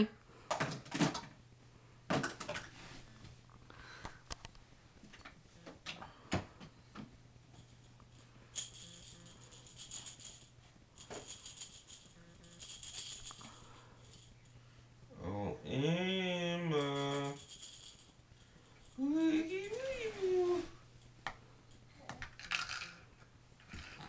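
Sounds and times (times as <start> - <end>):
baby toy jingling: 8.6 - 14.4, 16.7 - 18.2.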